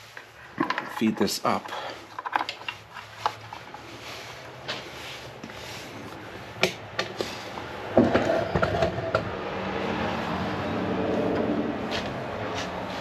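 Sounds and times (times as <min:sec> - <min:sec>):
cables clicking and rustling: 0:00.1 - 0:07.4.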